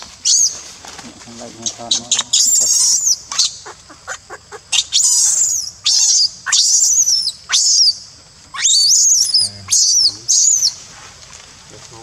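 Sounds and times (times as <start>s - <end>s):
infant monkey screaming: 1.6s - 10.8s.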